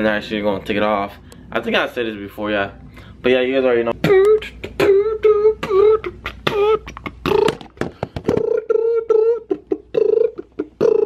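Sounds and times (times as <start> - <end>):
man beatboxing: 3.9 - 11.0.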